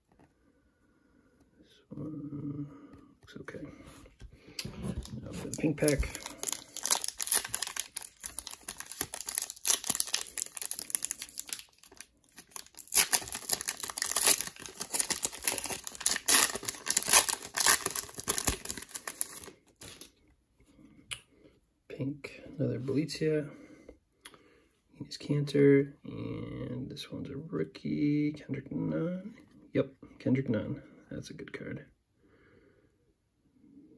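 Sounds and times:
plastic wrapper crinkling and tearing: 0:04.6 - 0:20.1.

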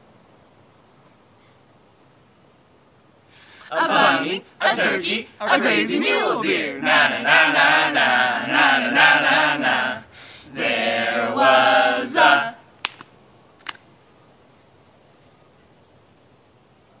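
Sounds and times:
group singing wordless chant: 0:03.6 - 0:12.6
sharp clicks: 0:12.8 - 0:13.8.

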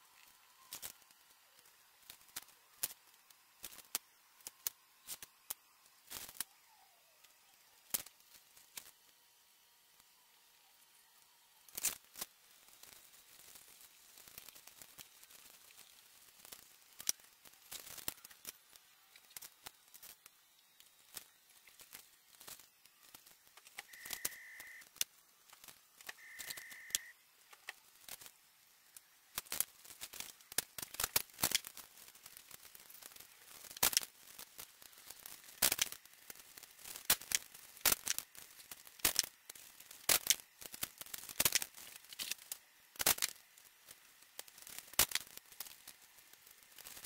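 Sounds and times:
short high beeps: 0:23.9 - 0:24.8, 0:26.2 - 0:27.1
tape tearing: 0:35.0 - 0:43.4.

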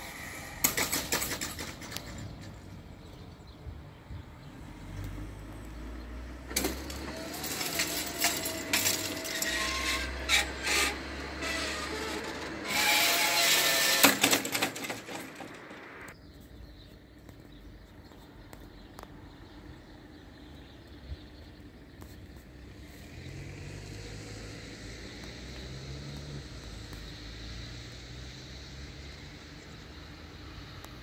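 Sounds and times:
grille rattling and clinking: 0:00.6 - 0:02.9, 0:06.5 - 0:16.0
barrier drive whining: 0:06.4 - 0:16.2.

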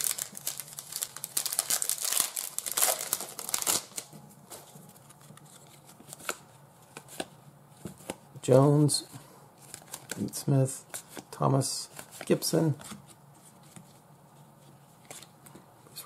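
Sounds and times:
plastic wrapper tearing and crinkling: 0:00.0 - 0:04.1.

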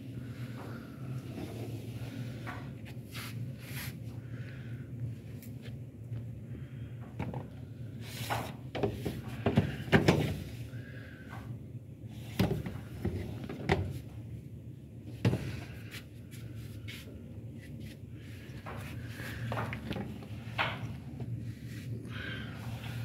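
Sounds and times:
low steady hum: 0:00.0 - 0:23.0
plastic trays knocking and scraping: 0:08.2 - 0:10.5, 0:12.3 - 0:14.0.

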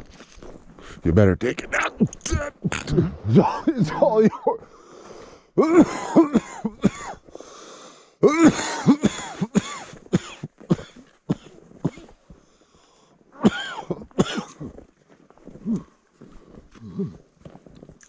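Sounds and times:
man coughing hard: 0:02.2 - 0:04.6, 0:05.6 - 0:07.2, 0:08.2 - 0:12.1, 0:13.4 - 0:14.7
wheezy breaths: 0:04.6 - 0:05.6, 0:07.3 - 0:08.2.

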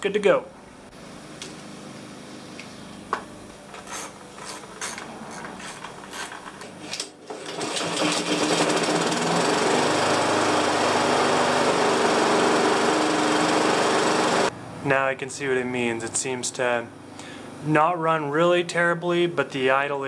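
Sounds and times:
lawn mower engine running: 0:07.2 - 0:14.5.

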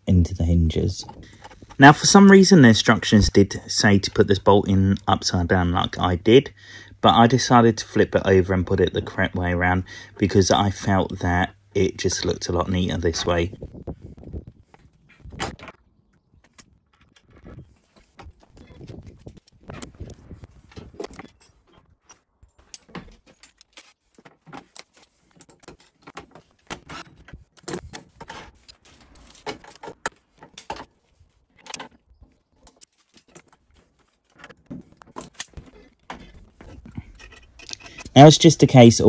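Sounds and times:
metallic clinks and knocks: 0:14.7 - 0:38.2.

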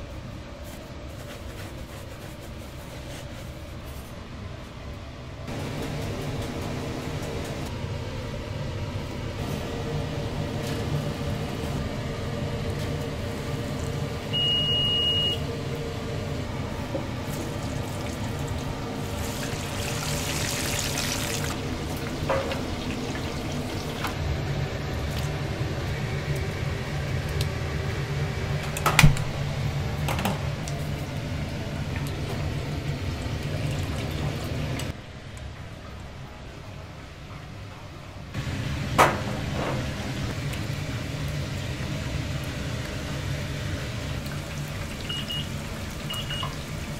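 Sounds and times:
kitchen equipment hum: 0:00.0 - 0:46.9
beep: 0:14.3 - 0:15.4.

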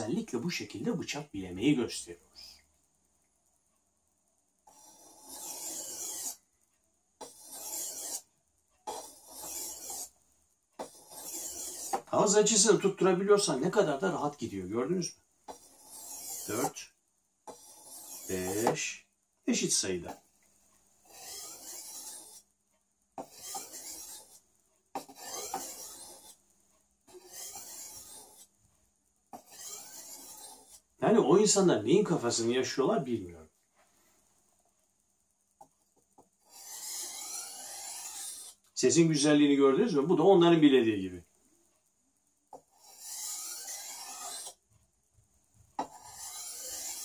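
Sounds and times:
blade scraping sharpening stone: 0:04.7 - 0:06.4, 0:07.2 - 0:10.1, 0:10.8 - 0:12.6, 0:15.5 - 0:16.9, 0:17.5 - 0:18.7, 0:21.0 - 0:22.5, 0:23.2 - 0:24.4, 0:25.0 - 0:26.4, 0:27.1 - 0:28.5, 0:29.3 - 0:30.9, 0:36.4 - 0:38.7, 0:42.5 - 0:44.6, 0:45.8 - 0:47.0.

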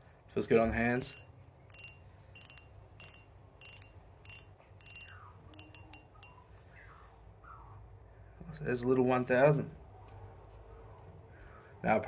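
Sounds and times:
spinning reel clicking: 0:01.0 - 0:06.4.

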